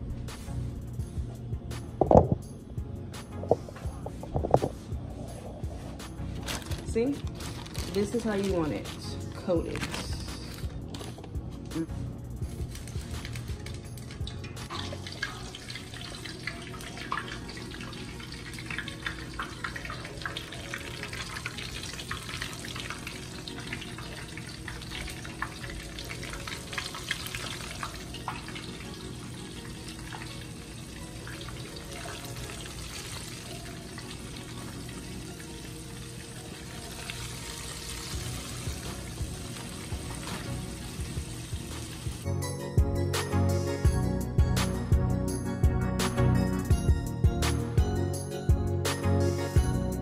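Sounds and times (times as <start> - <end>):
chicken frying in oil: 12.6 - 42.2.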